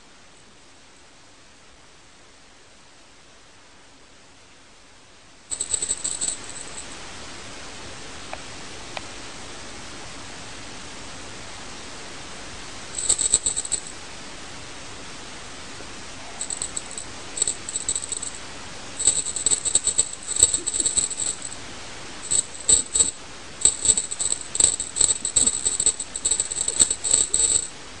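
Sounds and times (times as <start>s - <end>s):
small bell jingling: 5.5s - 7.0s, 13.0s - 13.9s, 16.3s - 18.4s, 19.0s - 21.6s, 22.2s - 27.7s.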